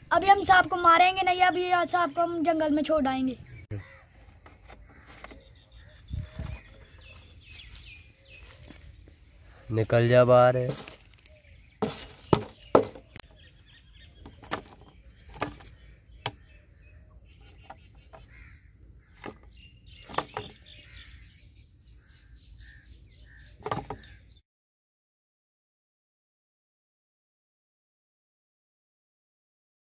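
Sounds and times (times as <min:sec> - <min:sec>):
faint birds chirping: 0:00.0 - 0:24.4
plastic bottle crackling: 0:10.6 - 0:13.2.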